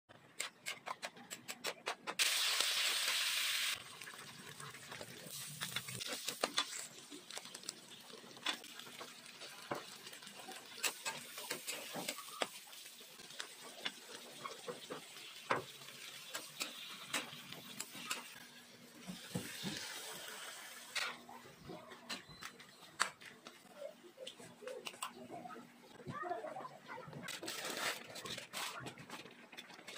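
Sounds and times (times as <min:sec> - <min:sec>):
faint sizzle: 0:02.2 - 0:21.7.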